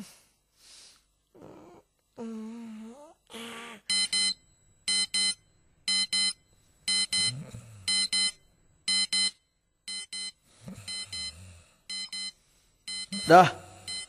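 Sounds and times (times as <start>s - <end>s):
alarm clock beeping: 3.9s - 14.0s.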